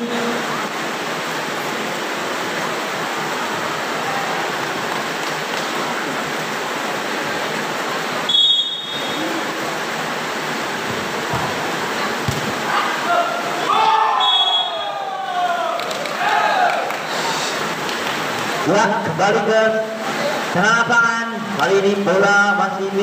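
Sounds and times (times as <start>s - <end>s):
steady background hiss: 0.0s - 23.0s
short high whistle blast: 8.3s - 9.3s, 14.2s - 15.0s.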